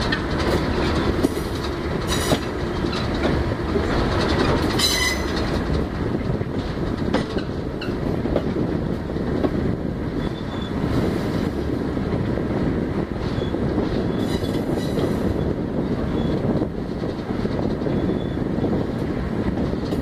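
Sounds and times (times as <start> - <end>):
rail joint clicks: 0.0 - 20.0
train wheels rumbling on rail: 0.0 - 20.0.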